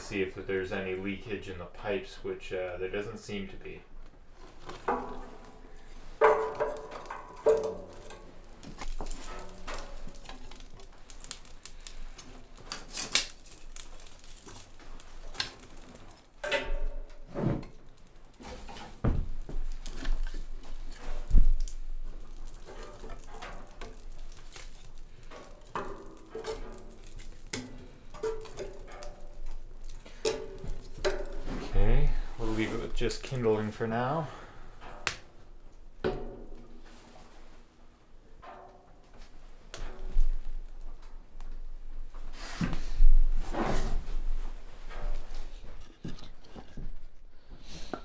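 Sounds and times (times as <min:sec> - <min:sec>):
kindling crackling: 0:00.0 - 0:36.0
wooden sticks knocking on stove: 0:04.8 - 0:12.0, 0:18.4 - 0:31.7, 0:36.0 - 0:36.7.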